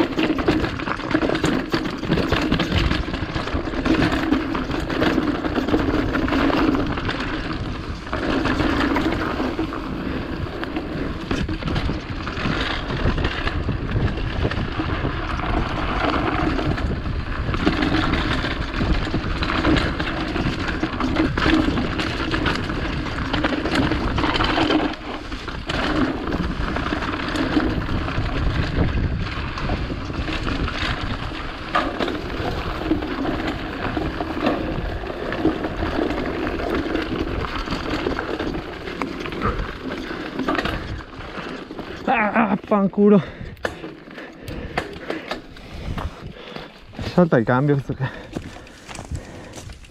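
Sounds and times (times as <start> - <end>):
bike chain and frame rattling: 0.0 - 49.9
bike tyres rolling over dirt: 0.0 - 49.9
wind on microphone: 10.2 - 24.5, 25.5 - 38.7, 44.5 - 47.2.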